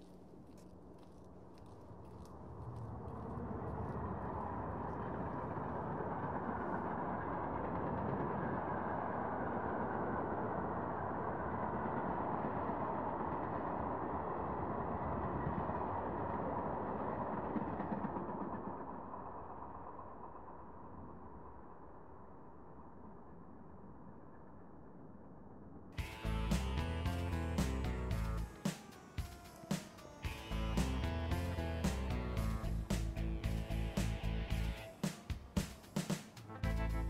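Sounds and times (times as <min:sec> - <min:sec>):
steady rushing rumbling noise: 0:30.3 - 0:34.9.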